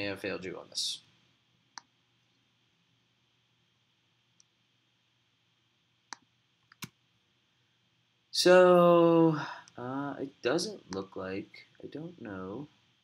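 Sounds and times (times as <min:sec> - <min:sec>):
computer mouse clicks: 0:06.1 - 0:07.0.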